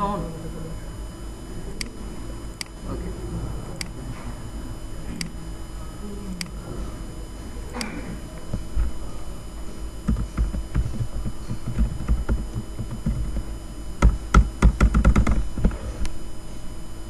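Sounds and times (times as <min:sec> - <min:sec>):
typing on keyboard: 0:10.1 - 0:13.4, 0:14.0 - 0:15.7.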